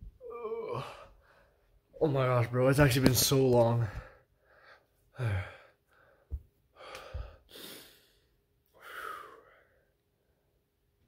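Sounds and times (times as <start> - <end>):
man breathing hard: 3.9 - 10.3.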